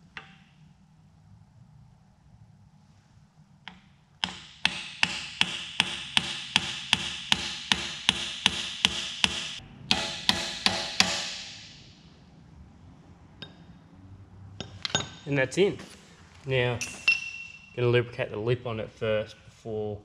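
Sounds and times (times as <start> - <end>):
mallet striking metal: 4.2 - 12.0.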